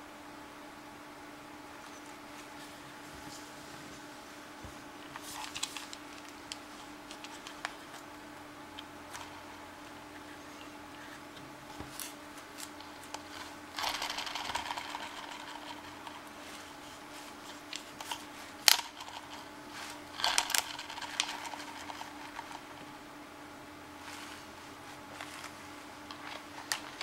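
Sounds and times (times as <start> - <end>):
faint steady hum: 0.0 - 27.0
plastic toy clicking and rattling: 12.6 - 16.3, 17.7 - 22.8, 26.1 - 27.0
rustling: 24.0 - 27.0.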